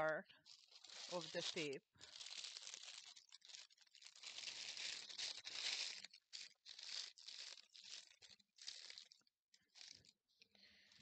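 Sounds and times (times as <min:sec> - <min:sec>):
plastic bags crinkling: 0:00.0 - 0:10.3.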